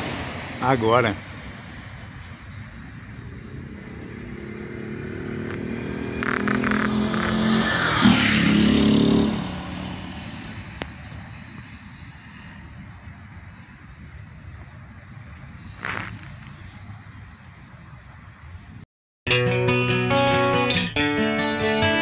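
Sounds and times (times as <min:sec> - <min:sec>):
motor vehicle passing: 0:00.0 - 0:17.1.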